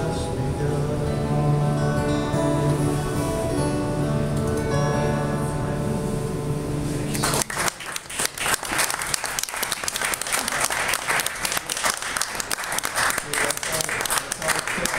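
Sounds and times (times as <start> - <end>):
acoustic guitars ringing chord: 0.0 - 14.9
applause: 7.1 - 14.9.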